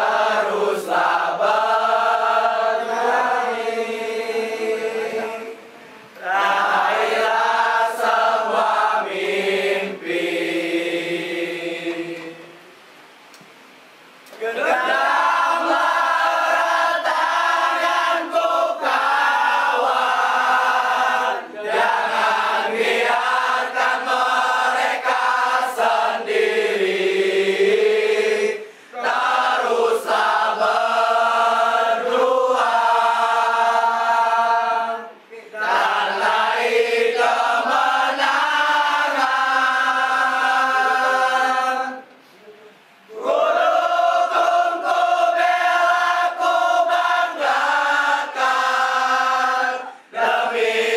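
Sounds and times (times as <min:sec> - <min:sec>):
football supporters chanting: 0:00.0 - 0:05.6, 0:06.2 - 0:12.4, 0:14.4 - 0:42.0, 0:43.1 - 0:50.9.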